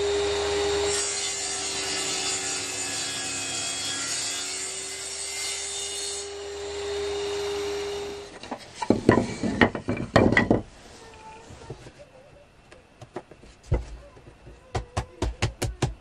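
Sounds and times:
table saw cutting wood: 0:00.0 - 0:09.6
wooden strips clattering on workbench: 0:08.4 - 0:10.7.

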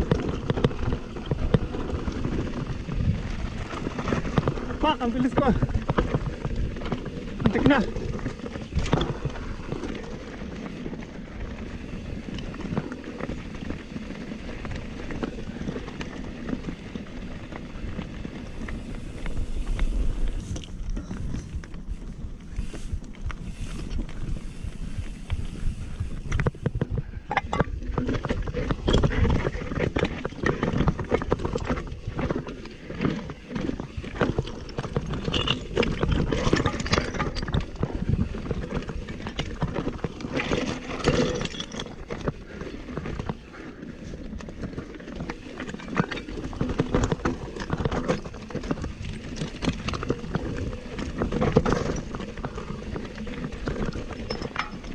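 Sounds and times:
tyres crunching over stones: 0:00.0 - 0:54.9
bike frame clattering: 0:52.9 - 0:54.9.

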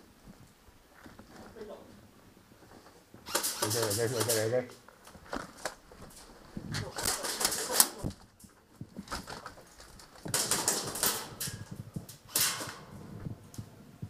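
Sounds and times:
shuffling footsteps: 0:04.7 - 0:07.0, 0:07.8 - 0:10.4
clothing and gear rustling: 0:04.8 - 0:10.3.

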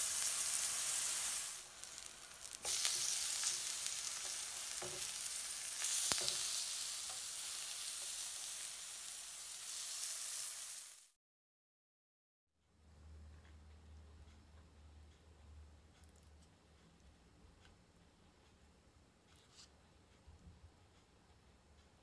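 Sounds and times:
vegetable slices sizzling in a pan: 0:00.0 - 0:11.2
tongs knocking against a pan: 0:04.2 - 0:05.2.

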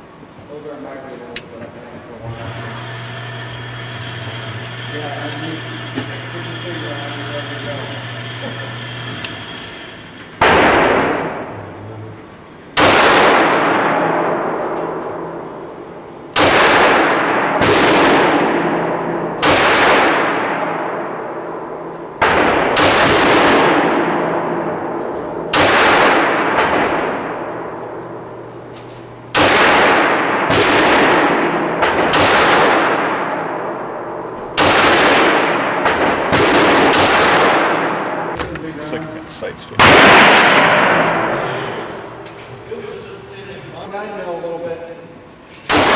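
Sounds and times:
pistol shots echoing indoors: 0:10.4 - 0:11.6, 0:12.7 - 0:28.4, 0:29.3 - 0:38.4, 0:39.8 - 0:42.3, 0:45.6 - 0:45.9.

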